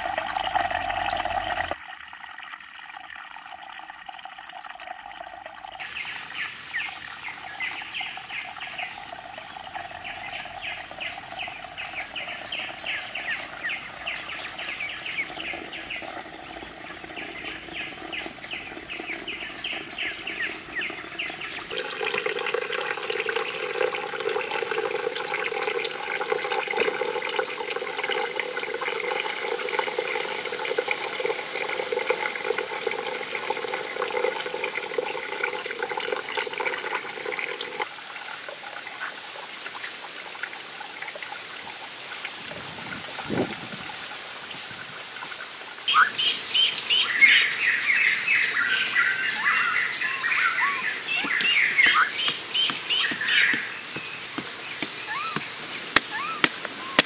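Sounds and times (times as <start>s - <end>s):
water trickling onto stones: 0.0s - 45.9s, 46.6s - 57.0s
rapid high chirping: 49.1s - 57.0s.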